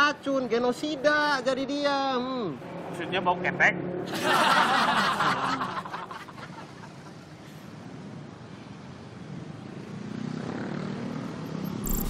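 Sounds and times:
street traffic noise: 0.0 - 12.0
people laughing: 4.1 - 7.2.

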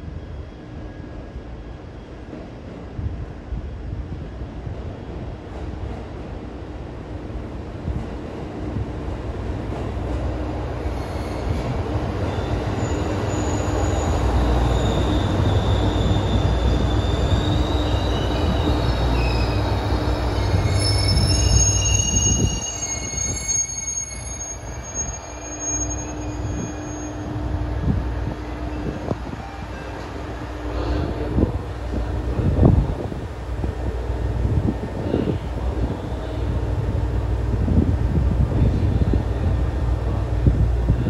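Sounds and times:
train engine and wheels rumbling: 0.0 - 41.0
wheel and brake squeals: 11.0 - 27.4.

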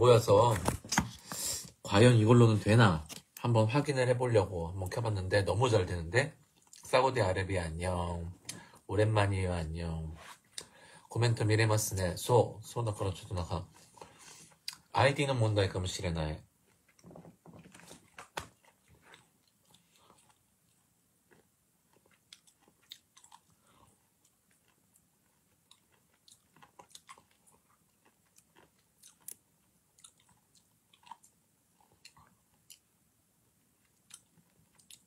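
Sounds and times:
person chewing food: 16.6 - 32.9, 33.8 - 35.0.

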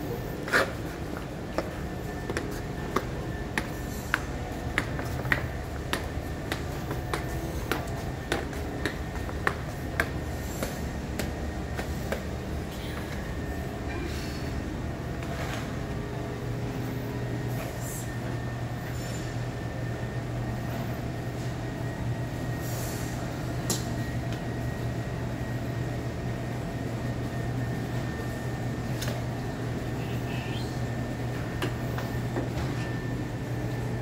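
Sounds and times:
machinery droning hum: 0.0 - 34.0.

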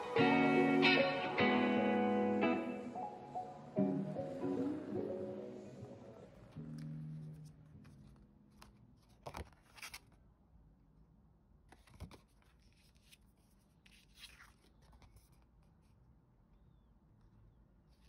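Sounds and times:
paper rustling and crinkling: 6.6 - 10.2, 11.7 - 15.9.

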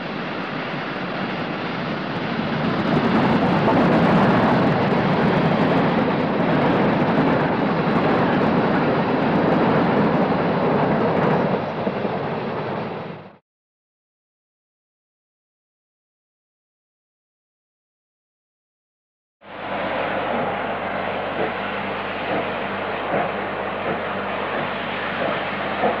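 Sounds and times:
rolling train noise: 0.0 - 13.4, 19.4 - 26.0
steam locomotive passing: 0.0 - 13.4, 19.4 - 26.0.

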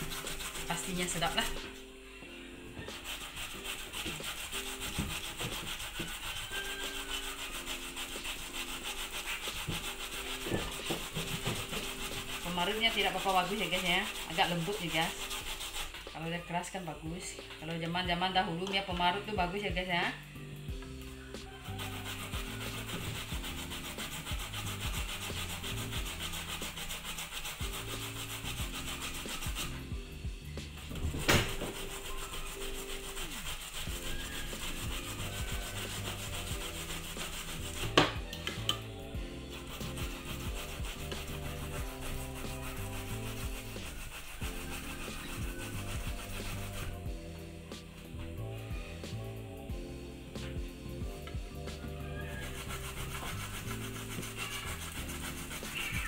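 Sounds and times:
root grated on metal grater: 0.0 - 1.8, 2.8 - 16.8, 21.5 - 29.9, 30.9 - 47.0, 52.1 - 56.0.

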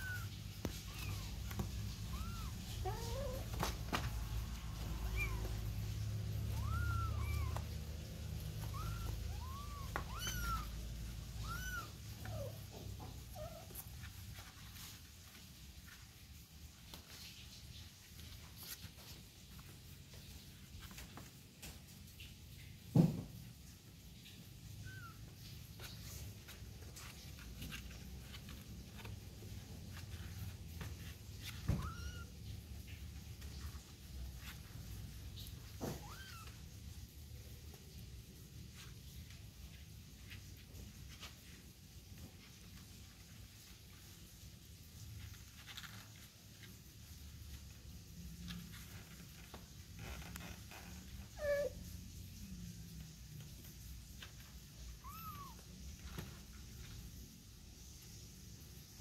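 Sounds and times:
kittens mewing: 0.0 - 13.8, 54.9 - 55.7
light clicks and rustles: 0.0 - 57.5.

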